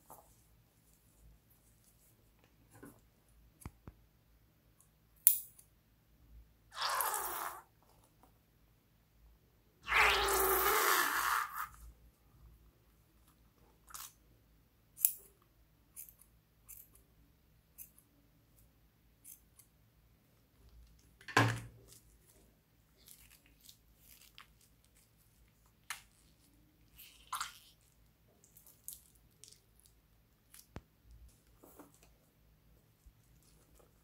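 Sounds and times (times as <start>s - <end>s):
slimy rubber glove squishing: 9.8s - 11.8s, 21.9s - 30.8s.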